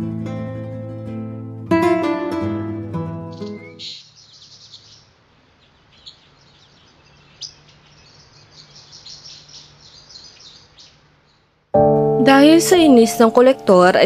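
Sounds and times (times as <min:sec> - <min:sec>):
plucked guitar music: 0:00.0 - 0:03.8, 0:11.8 - 0:14.0
small birds chirping: 0:03.2 - 0:11.7.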